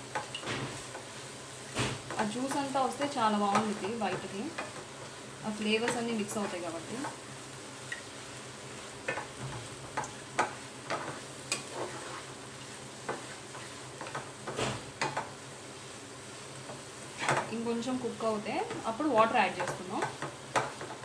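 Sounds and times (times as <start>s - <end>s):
soft sizzle: 0.0s - 21.0s
spatula scraping frying pan: 9.0s - 15.3s, 16.6s - 17.5s.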